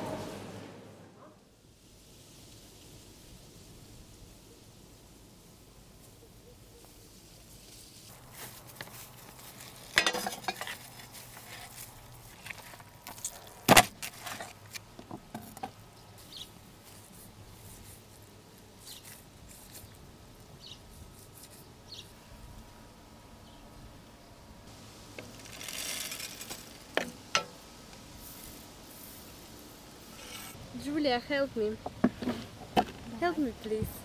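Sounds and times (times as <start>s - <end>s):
utensils and dishware clattering: 9.9s - 10.8s.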